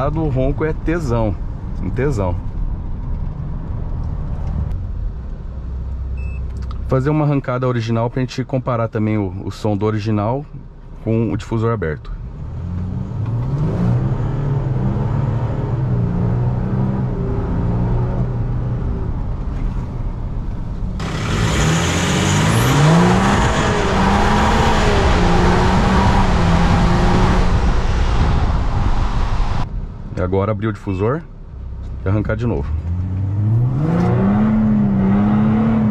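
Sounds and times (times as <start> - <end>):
wind and road noise: 0.0 - 8.6, 10.5 - 35.9
diesel engine accelerating: 12.0 - 30.3, 31.5 - 35.9.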